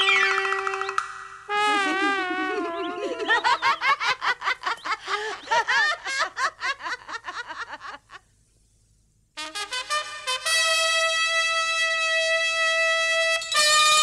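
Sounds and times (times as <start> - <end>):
boys laughing: 1.7 - 8.2.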